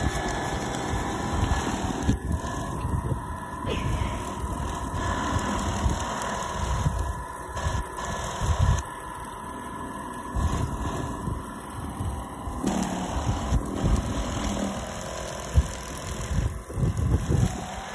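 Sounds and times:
auger churning snow: 0.0 - 17.9
motor hum with whine: 0.0 - 17.9.

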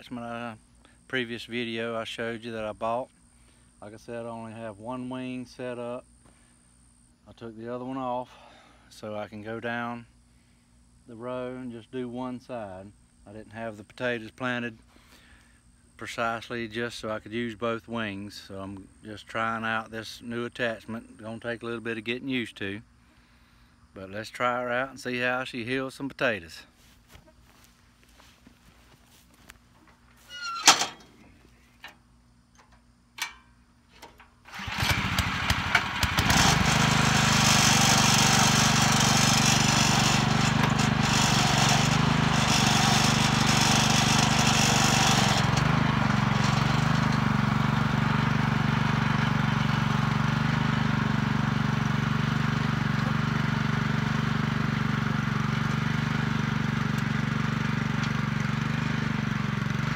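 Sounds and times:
small gas engine running: 34.5 - 59.9
recoil cord pulls: 37.4 - 47.3.

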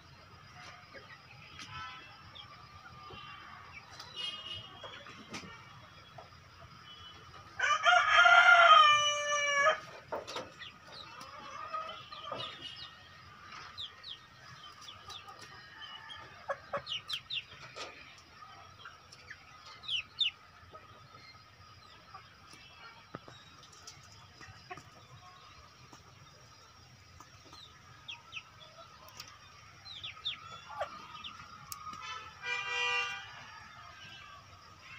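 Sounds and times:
rooster crowing: 7.6 - 9.9, 15.6 - 16.9, 30.6 - 34.7
hens clucking: 8.5 - 34.9.

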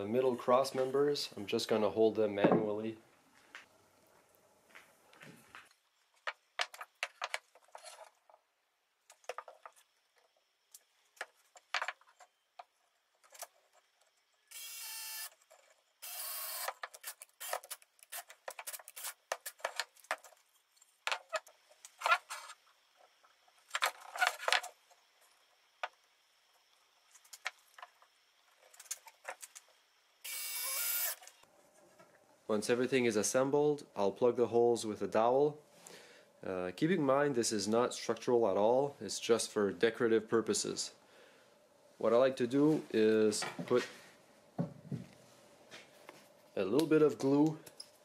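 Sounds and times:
wooden pieces clicking and knocking: 6.2 - 8.0, 11.2 - 13.5
cordless drill driving screws: 14.5 - 15.4, 16.0 - 18.2, 30.3 - 31.3.

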